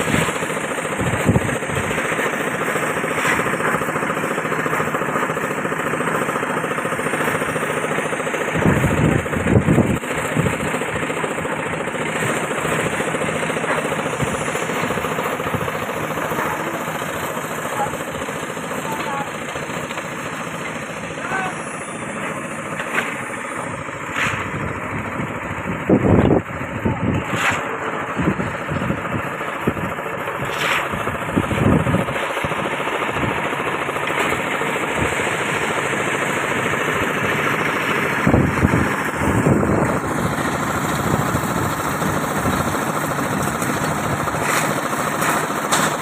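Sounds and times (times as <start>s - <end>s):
concrete mixer engine running: 0.0s - 46.0s.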